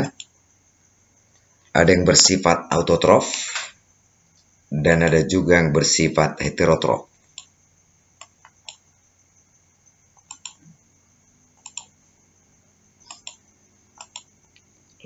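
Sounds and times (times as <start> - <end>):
computer mouse clicks: 0.0 - 0.3, 7.2 - 7.5, 8.2 - 8.8, 10.2 - 10.7, 11.6 - 11.9, 13.0 - 13.4, 14.0 - 14.7.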